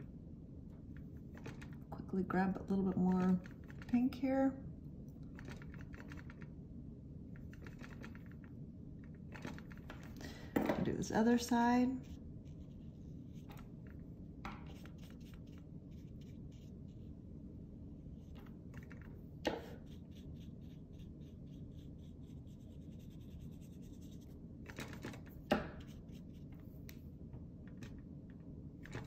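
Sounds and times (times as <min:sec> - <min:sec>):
paintbrush scratching on paper: 0:11.9 - 0:13.7, 0:14.6 - 0:17.2, 0:19.4 - 0:25.1, 0:25.8 - 0:26.6.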